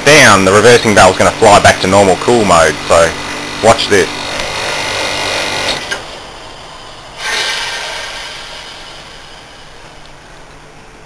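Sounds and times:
air conditioner running: 0.0 - 11.0
refrigerant hissing: 7.2 - 10.0.

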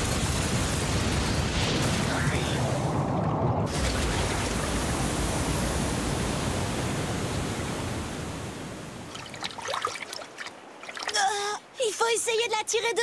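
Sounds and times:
cartoon rushing water: 1.6 - 11.6.

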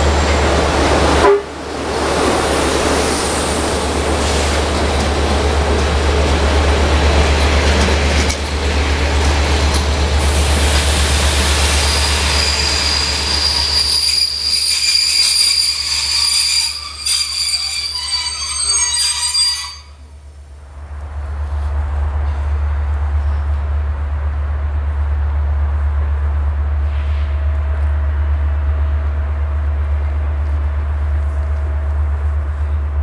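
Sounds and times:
train wheels rumbling: 0.0 - 33.0
braked wheels squealing: 11.6 - 20.0.

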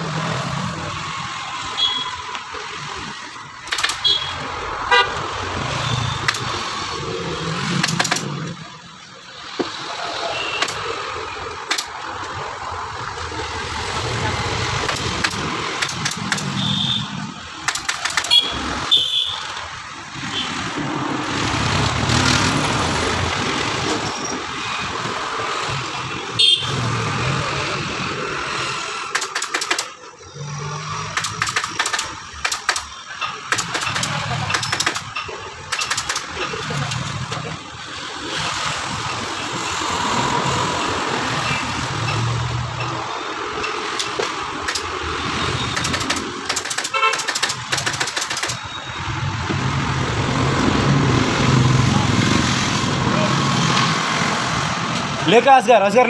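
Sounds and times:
scooters and motorcycles passing: 0.0 - 56.0
sharp clicks: 3.6 - 4.5, 5.6 - 6.7, 7.6 - 8.6, 10.6 - 10.9, 11.6 - 12.4, 14.6 - 18.7, 29.0 - 30.1, 30.9 - 37.4, 42.0 - 48.8.

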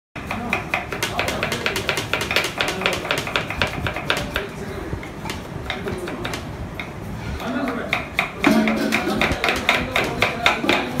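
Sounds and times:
knives chopping on wooden boards: 0.2 - 4.5, 7.4 - 11.0.

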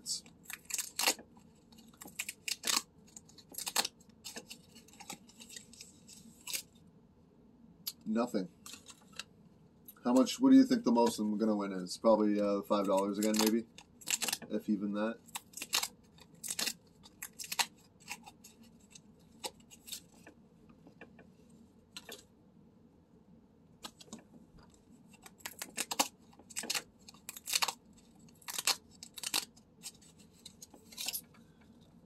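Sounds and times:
paper tickets tearing: 0.4 - 1.2, 1.8 - 6.7, 12.7 - 14.5, 15.2 - 20.2, 25.2 - 31.2.

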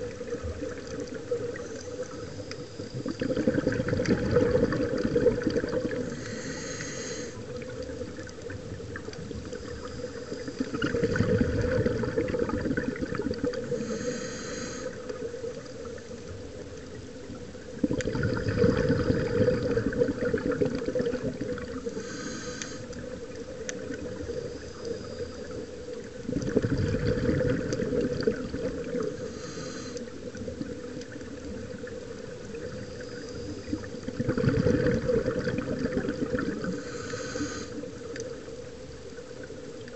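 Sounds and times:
exhaled bubbles rumbling underwater: 0.0 - 39.9
regulator inhale hiss: 1.7 - 3.2, 5.9 - 7.6, 9.4 - 11.0, 13.5 - 16.3, 21.7 - 23.2, 24.2 - 26.0, 29.0 - 30.5, 32.6 - 34.2, 36.6 - 38.3.

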